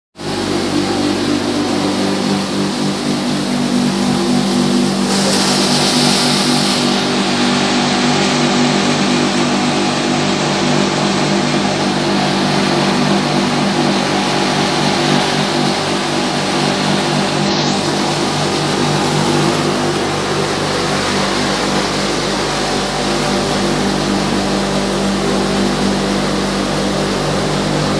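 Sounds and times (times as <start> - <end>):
mill machinery drone: 0.2 - 27.9
hiss: 4.8 - 9.1.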